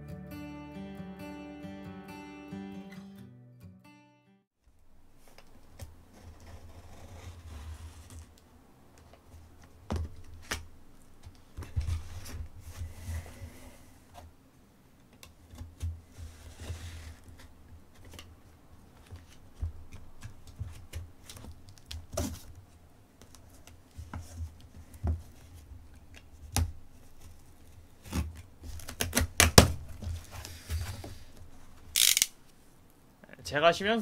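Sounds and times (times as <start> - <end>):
knife scraping cardboard: 6.1 - 8.3, 16.1 - 17.5
utility knife cutting tape: 31.9 - 32.4.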